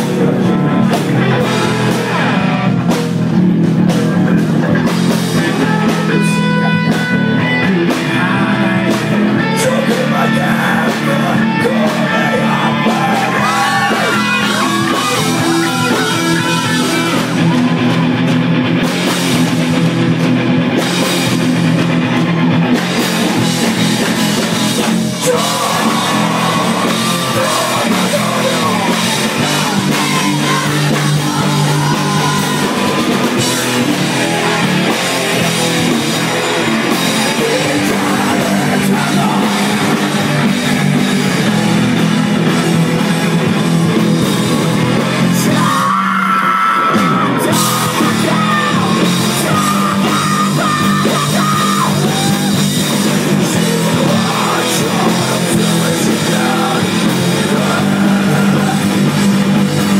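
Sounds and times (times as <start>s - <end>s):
drum kit: 0.0s - 59.9s
electric guitars: 0.0s - 59.9s
man singing: 4.0s - 17.7s, 23.3s - 41.6s, 45.2s - 59.9s.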